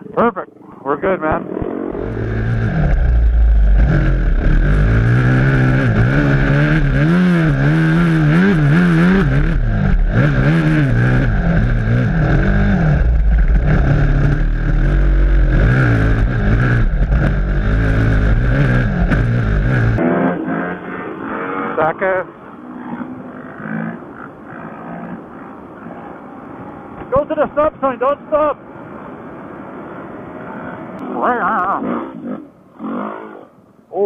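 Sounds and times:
dirt bike engine revving: 1.2s - 26.2s, 30.4s - 33.5s
wind rumble: 1.6s - 20.0s.

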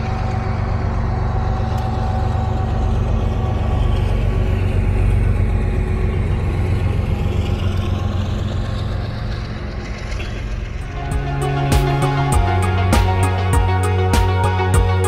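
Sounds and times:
diesel locomotive engine drone: 0.0s - 15.0s
music: 10.8s - 15.0s.

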